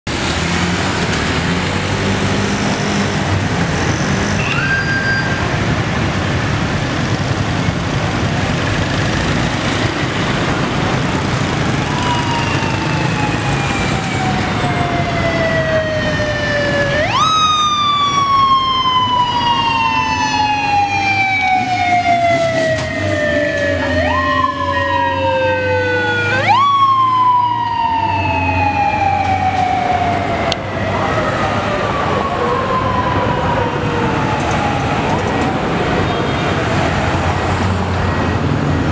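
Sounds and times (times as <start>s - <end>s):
street traffic: 0.1s - 38.9s
police siren wailing: 4.4s - 5.6s, 10.2s - 38.9s.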